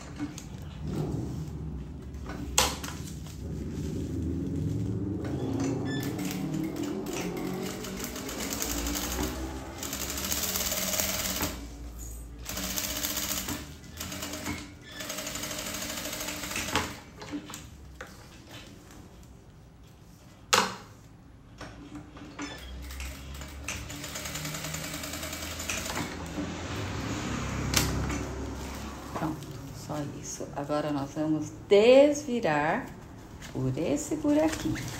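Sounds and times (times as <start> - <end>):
sewing machine stitching: 5.3 - 17.5, 22.0 - 26.5.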